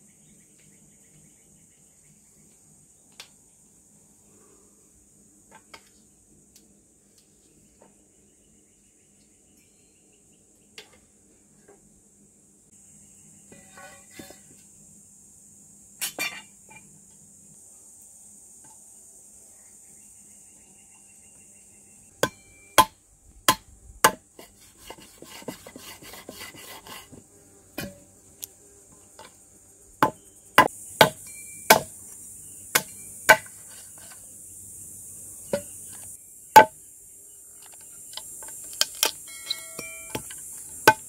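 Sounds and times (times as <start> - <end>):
insects buzzing: 0.0 - 41.0
knife cutting and scraping: 24.4 - 27.2
knife chopping on wooden board: 31.0 - 31.9.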